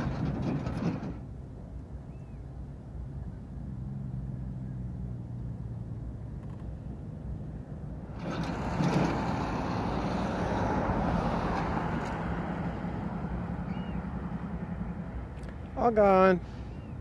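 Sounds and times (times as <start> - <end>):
vehicle engine idling: 12.7 - 17.0.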